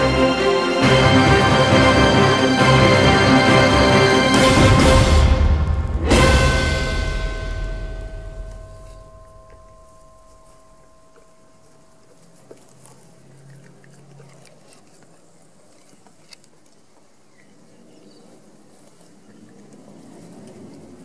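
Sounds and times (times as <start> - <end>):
puppy chewing grass: 9.4 - 21.0.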